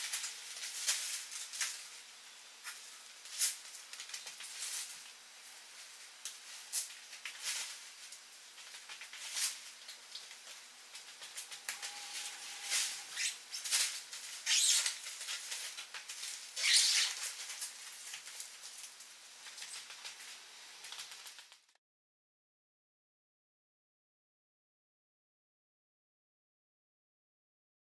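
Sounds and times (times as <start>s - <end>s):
nylon tent fly rustling: 0.0s - 21.7s.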